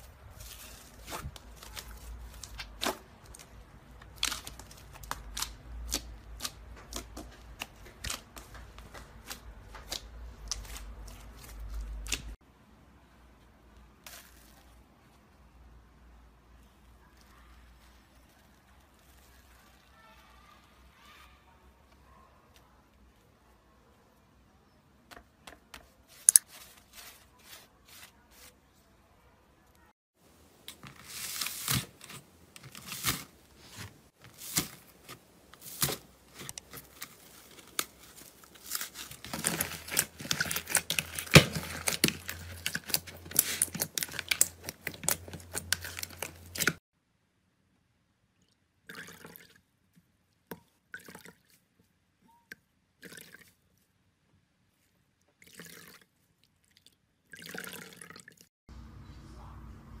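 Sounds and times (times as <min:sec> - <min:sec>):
slime crackling and popping: 0:37.4 - 0:46.8.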